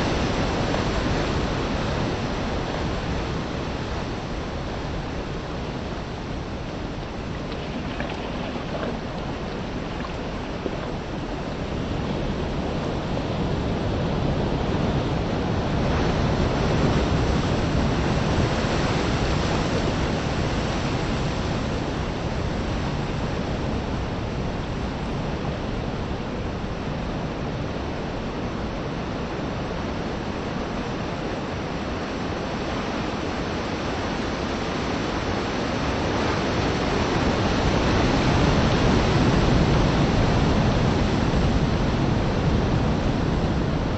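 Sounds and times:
sea waves washing on shore: 0.0s - 26.8s
wind: 0.0s - 43.9s.

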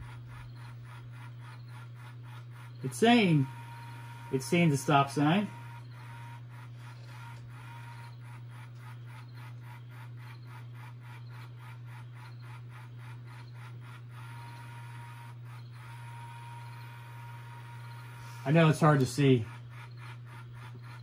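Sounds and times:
gear motors whirring: 0.0s - 21.0s
steady low hum: 0.0s - 21.0s.

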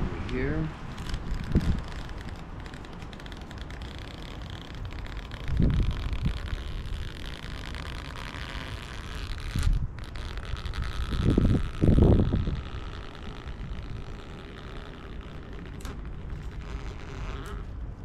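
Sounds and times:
steady outdoor hiss: 0.0s - 18.0s
wind buffeting microphone: 0.0s - 18.0s.

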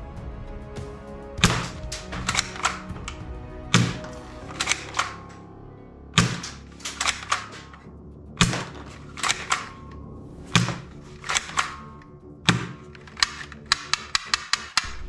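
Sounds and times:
soft background music: 0.0s - 15.0s
toy rifle plastic clacks: 1.4s - 3.2s, 3.8s - 5.2s, 6.2s - 7.8s, 8.4s - 9.9s, 10.6s - 14.9s.

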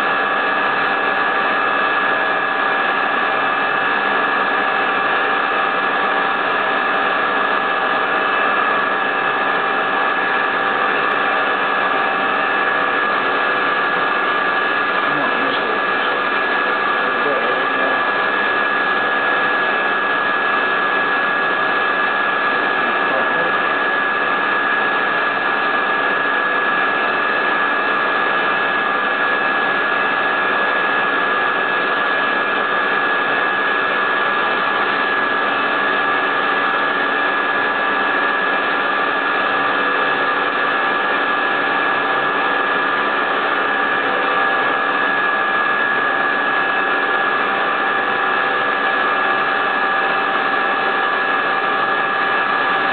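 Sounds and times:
end mill cutting: 0.0s - 52.9s
milling spindle whine: 0.0s - 52.9s.

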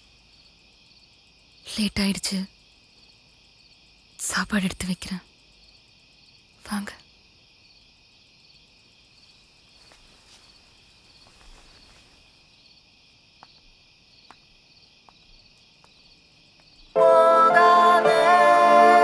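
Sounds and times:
crickets chirping: 0.0s - 19.0s
soft footsteps walking: 9.8s - 12.4s.

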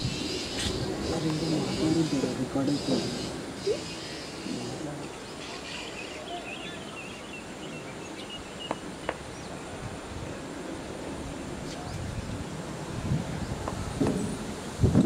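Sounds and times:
wind on microphone: 0.0s - 5.3s, 8.8s - 15.0s.

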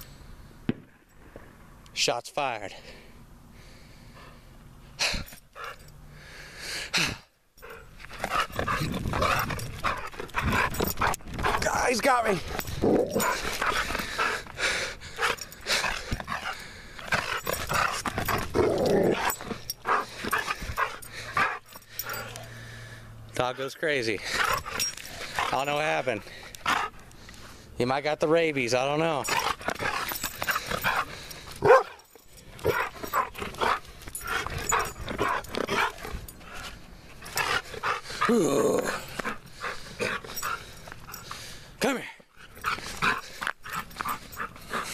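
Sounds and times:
dog growling in play: 7.7s - 11.6s, 12.4s - 14.5s, 15.2s - 22.4s, 37.3s - 40.6s.

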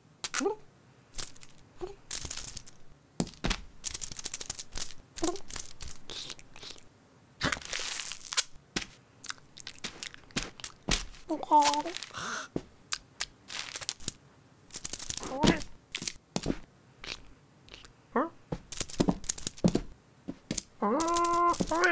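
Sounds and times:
sticky tape ripping: 1.2s - 6.8s, 7.4s - 12.2s, 12.9s - 17.8s, 20.5s - 21.9s
small cat noises: 4.4s - 7.8s, 15.0s - 15.8s, 17.0s - 18.4s, 20.6s - 21.9s.

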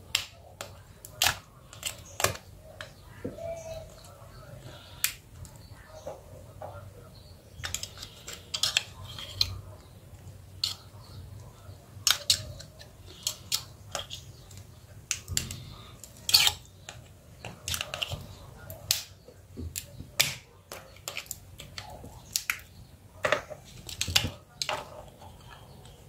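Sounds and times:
plastic clips snapping: 0.0s - 2.9s
metal scraping on plastic: 7.4s - 9.9s, 12.0s - 26.0s.

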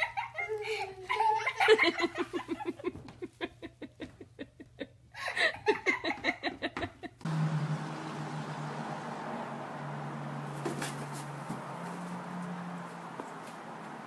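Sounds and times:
person laughing: 0.0s - 7.2s
low hum: 7.3s - 13.9s.

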